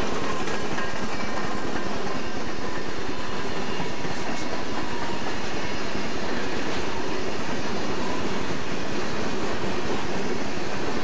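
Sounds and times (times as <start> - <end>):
freight cars rumbling and clattering: 0.0 - 2.9.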